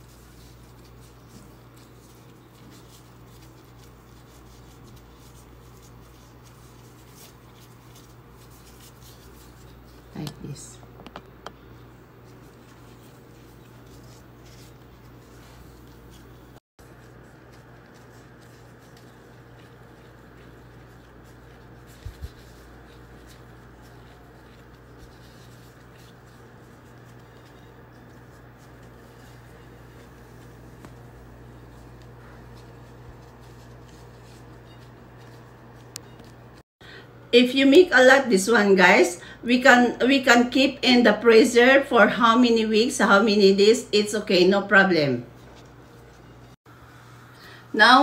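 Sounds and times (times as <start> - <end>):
plastic gloves crinkling: 0.0 - 10.8, 11.6 - 36.6
steady low hum: 0.0 - 41.7.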